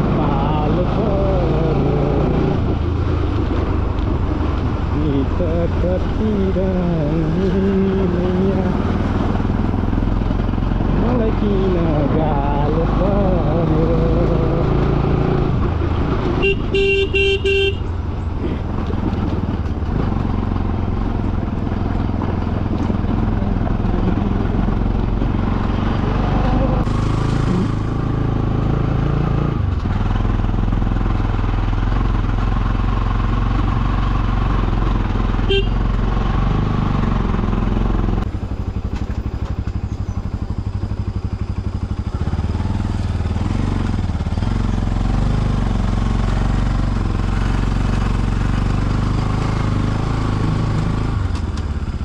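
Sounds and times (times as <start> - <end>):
motorcycle engine running: 0.0 - 52.0
motorcycle horn: 16.4 - 17.9, 35.4 - 36.0.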